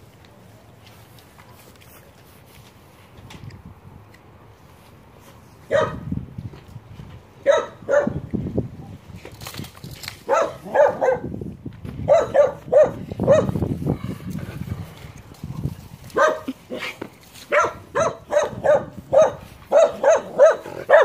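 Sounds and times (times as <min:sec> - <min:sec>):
dog barking: 0:05.7 - 0:06.0, 0:07.4 - 0:08.2, 0:10.3 - 0:11.3, 0:12.1 - 0:13.5, 0:16.2 - 0:16.5, 0:17.5 - 0:21.0.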